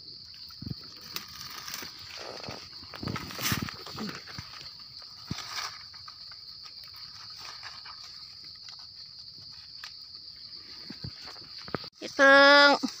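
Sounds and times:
insects droning: 0.0s - 13.0s
dry leaves crackling: 0.8s - 13.0s.

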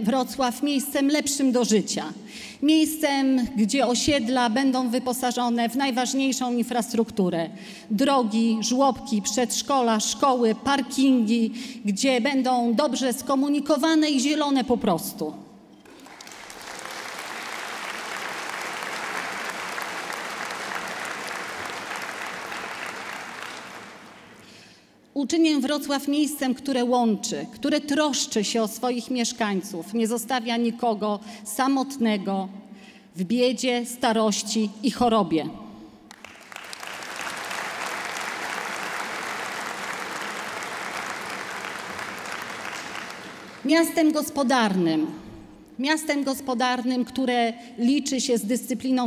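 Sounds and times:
audience applauding: 15.8s - 24.5s, 36.1s - 43.7s.

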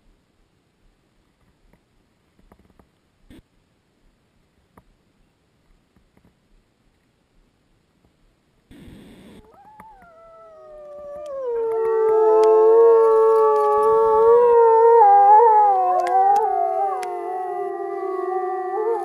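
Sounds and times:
wolves howling in chorus: 9.4s - 19.0s.

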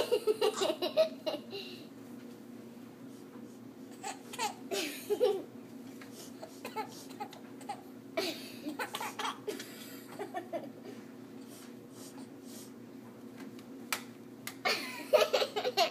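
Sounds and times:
baby giggling: 0.0s - 1.5s, 4.0s - 5.5s, 14.7s - 15.9s.

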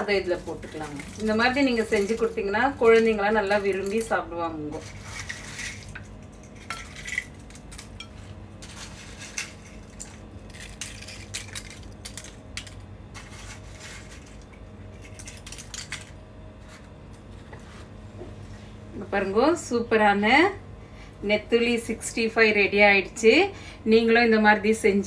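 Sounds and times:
crisp strips crackling onto a plate: 0.0s - 16.8s.

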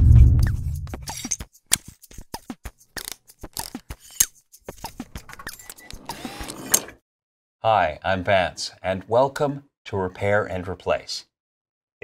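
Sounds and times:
ratchet-like mechanical clicks: 1.1s - 6.9s.

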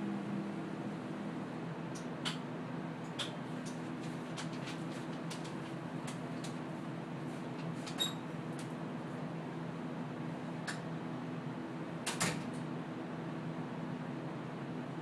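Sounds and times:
machine hum: 0.0s - 3.1s
short squeaks: 8.0s - 8.2s.

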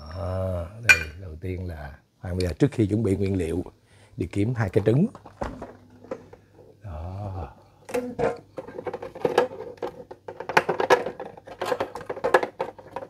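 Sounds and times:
containers and bottles clattering: 5.1s - 6.4s, 7.9s - 13.0s.

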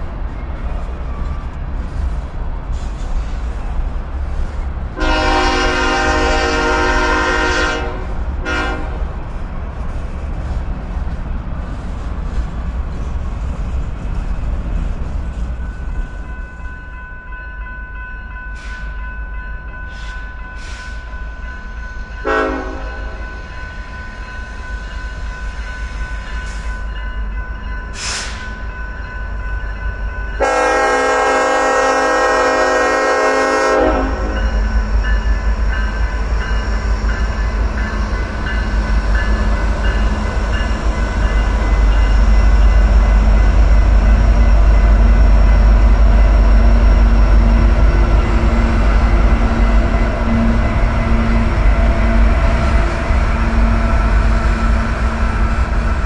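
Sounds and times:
diesel train horn: 5.0s - 9.2s, 22.2s - 23.4s, 30.4s - 35.0s.

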